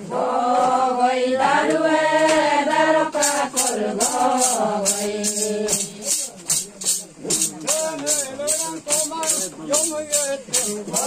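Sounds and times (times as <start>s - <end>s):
group chanting in unison: 0.0s - 6.1s, 10.4s - 11.0s
rhythmic rattle: 1.7s - 11.0s.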